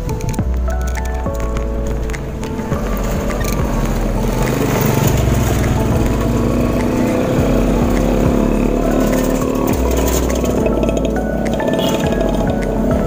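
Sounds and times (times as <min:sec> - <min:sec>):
small motorcycle engine running: 0:02.7 - 0:12.9.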